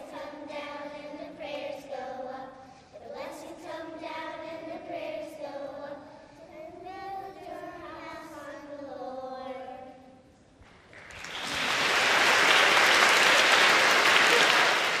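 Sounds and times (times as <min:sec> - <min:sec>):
children singing together: 0:00.0 - 0:10.1
applause: 0:10.6 - 0:15.0.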